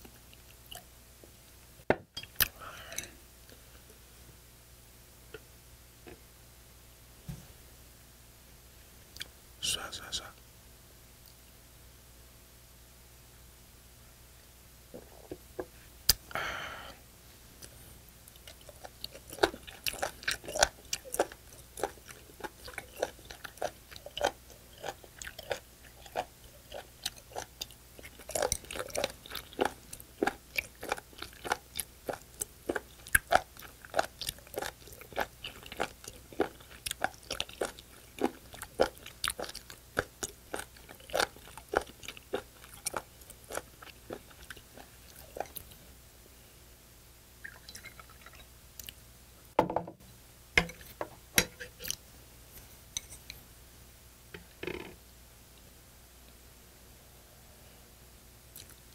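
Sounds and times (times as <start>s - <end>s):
crunchy chewing: 17.6s - 45.8s, 58.5s - 58.9s.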